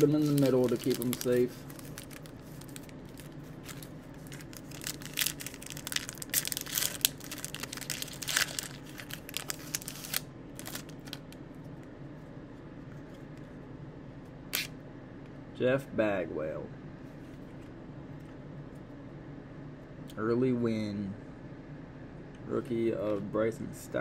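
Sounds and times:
foil wrapper tearing and crinkling: 0.0 - 11.3
faint steady hum: 0.0 - 24.0.

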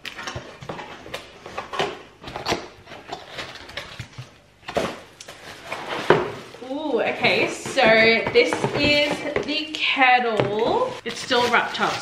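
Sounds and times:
packing material rustling: 0.7 - 9.4.

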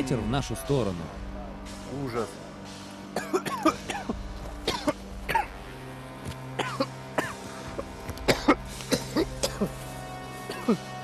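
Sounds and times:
people coughing and spluttering: 3.1 - 5.7, 6.5 - 11.0.

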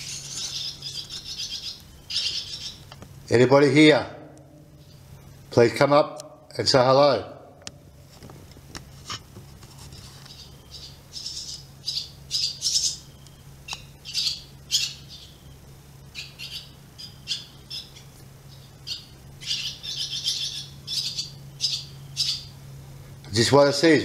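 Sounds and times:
birds squawking and chirping: 0.0 - 3.0, 10.0 - 22.7.

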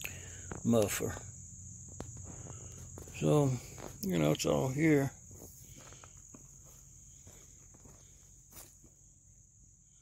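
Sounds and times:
high-pitched insect trill: 0.0 - 10.0
soft steps on gravel: 2.0 - 9.0.

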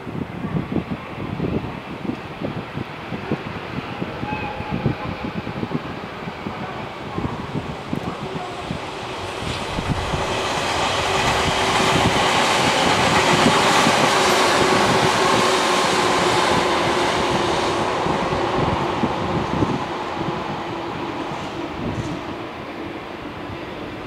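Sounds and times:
train wheels rumbling on rails: 0.0 - 24.0
locomotive whine: 6.2 - 20.1.

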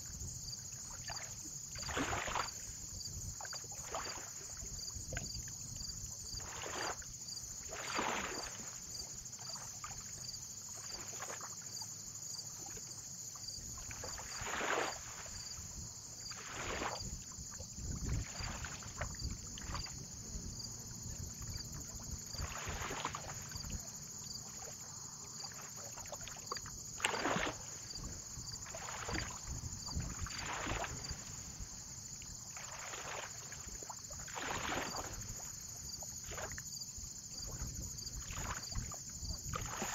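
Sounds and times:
small waves lapping and splashing: 0.0 - 39.9
low rumble of wind: 15.2 - 25.2, 27.6 - 32.5.

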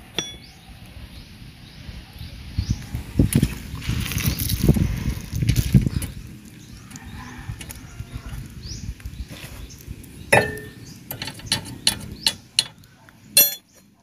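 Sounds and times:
metal tool clinking on steel: 0.2 - 0.4, 10.4 - 12.7, 13.4 - 13.7.

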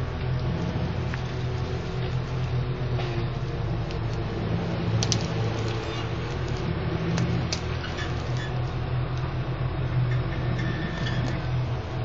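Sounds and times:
pickup truck engine running: 0.0 - 12.0.

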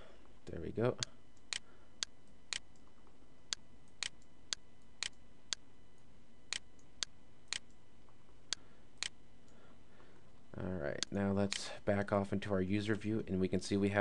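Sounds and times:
faint steady hiss: 0.0 - 14.0
sharp clicks: 1.4 - 2.9, 3.5 - 5.6, 6.5 - 7.8.

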